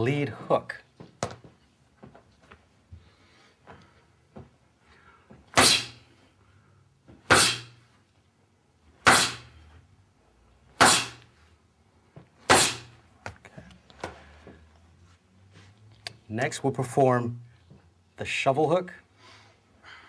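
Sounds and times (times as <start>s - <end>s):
punches slapping focus mitt: 5.5s - 6.0s, 7.2s - 7.8s, 9.0s - 9.5s, 10.8s - 11.3s, 12.5s - 12.9s.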